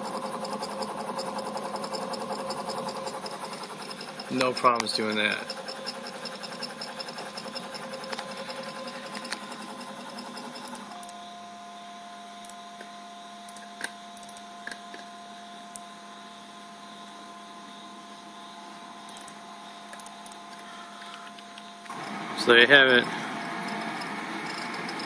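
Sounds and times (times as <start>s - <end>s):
servo motors buzzing: 0.0s - 11.1s, 21.9s - 25.0s
motors humming with thin whine: 0.0s - 25.0s.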